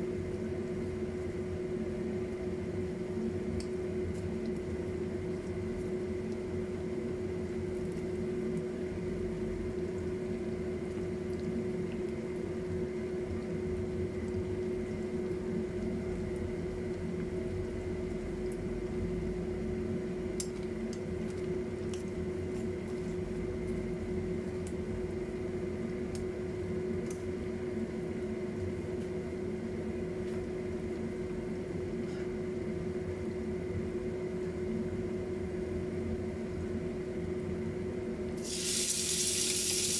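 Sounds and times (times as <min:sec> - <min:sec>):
appliance hum: 0:00.0 - 0:39.9
oil bubbling and sizzling: 0:00.2 - 0:19.0, 0:38.4 - 0:39.9.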